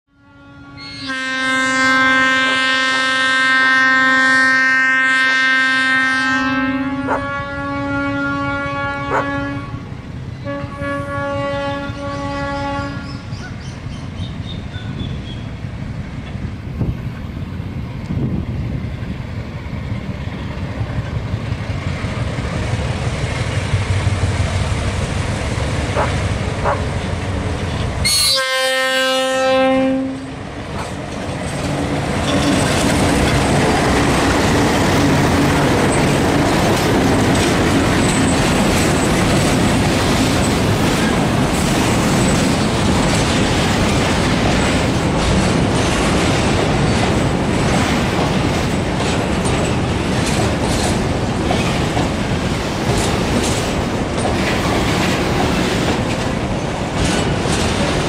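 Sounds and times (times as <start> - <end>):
locomotive horn blasts: 0.1 - 13.2, 28.0 - 30.4
train wheels clicking over rail joints: 13.2 - 28.2, 30.2 - 58.0
diesel engines rumbling: 15.5 - 28.2, 29.8 - 58.0.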